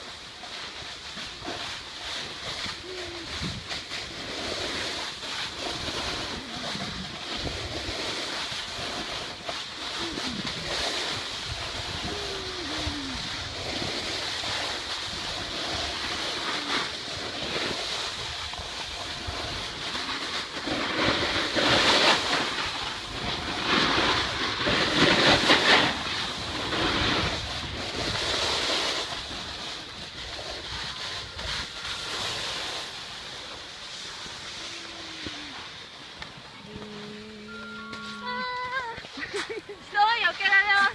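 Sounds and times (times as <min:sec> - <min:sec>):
snowboard scraping over snow: 0:00.0 - 0:40.9
wind rushing over microphone: 0:02.6 - 0:20.0, 0:21.2 - 0:32.9.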